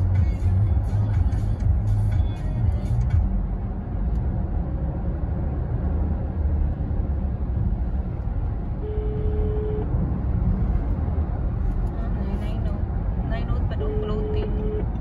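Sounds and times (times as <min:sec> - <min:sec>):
car cabin road rumble: 0:00.0 - 0:15.0
short steady tone: 0:08.8 - 0:09.9.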